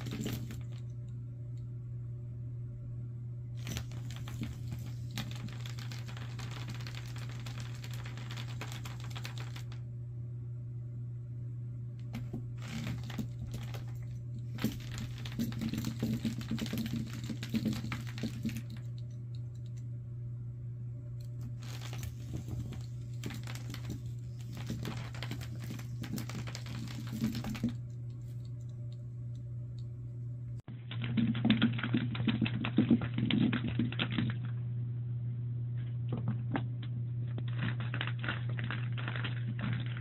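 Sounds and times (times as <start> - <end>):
cat toy rattling on wooden floor: 0.0 - 0.8, 3.6 - 9.8, 12.2 - 19.0, 21.6 - 27.8
steady low hum: 0.0 - 40.0.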